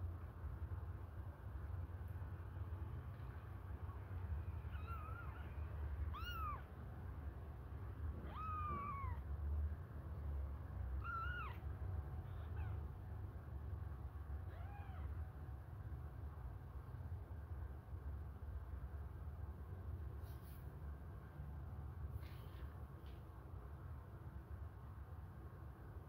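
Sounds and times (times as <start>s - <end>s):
kitten mewing: 4.7s - 6.8s, 8.1s - 9.3s, 11.0s - 12.9s, 14.4s - 15.2s.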